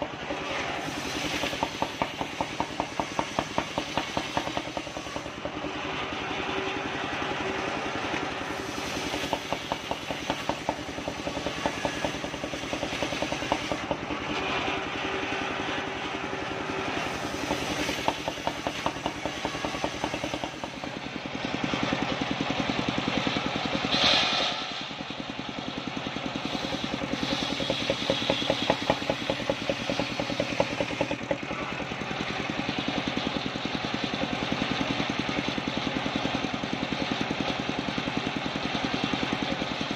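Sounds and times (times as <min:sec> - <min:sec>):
saw bench engine running: 0:00.0 - 0:24.0, 0:24.7 - 0:39.9
saw blade cutting hiss: 0:00.7 - 0:05.4, 0:08.4 - 0:14.0, 0:16.9 - 0:20.6, 0:26.4 - 0:31.0.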